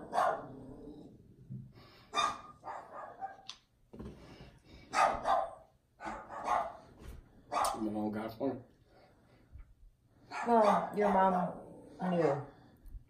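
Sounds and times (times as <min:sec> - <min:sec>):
dog barking: 0:00.0 - 0:00.7, 0:02.1 - 0:03.5, 0:04.9 - 0:06.9, 0:07.5 - 0:07.9, 0:10.3 - 0:11.0.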